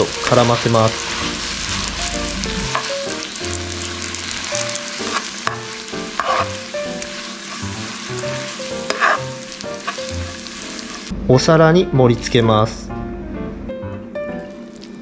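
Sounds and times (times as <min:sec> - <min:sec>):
pasta sizzling in a frying pan: 0:00.0 - 0:11.1
background music: 0:00.0 - 0:15.0.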